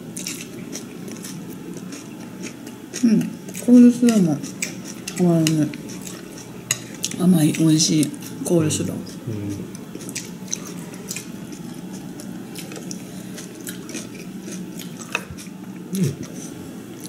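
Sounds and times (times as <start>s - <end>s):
low room hum: 0.0s - 17.0s
person chewing and crunching: 0.1s - 8.1s, 9.3s - 17.0s
person humming mm: 9.2s - 9.7s, 15.9s - 16.7s.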